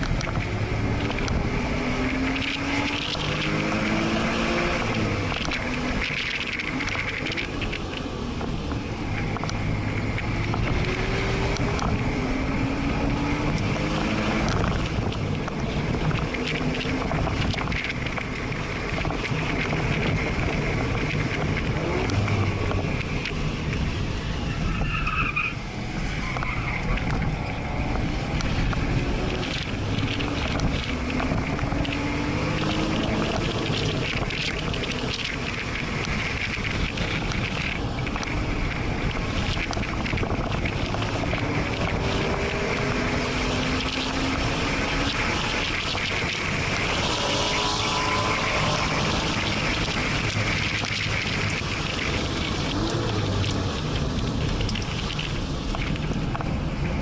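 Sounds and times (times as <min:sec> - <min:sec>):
car engine accelerating: 0:00.0 - 0:57.0
road and wind noise: 0:00.0 - 0:57.0
tyre squeal: 0:24.4 - 0:27.1.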